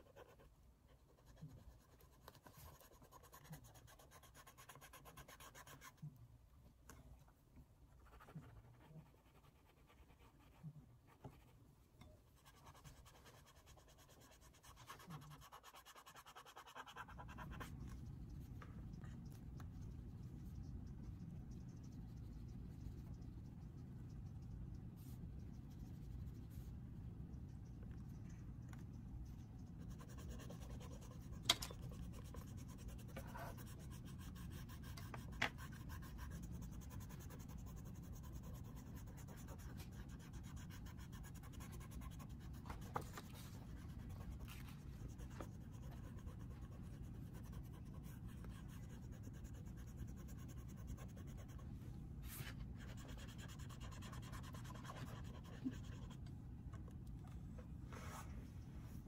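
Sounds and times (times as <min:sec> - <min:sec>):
pastel scratching on paper: 0:00.0 - 0:06.2, 0:12.3 - 0:24.4, 0:29.2 - 0:56.2
low steady hum: 0:00.0 - 0:59.0.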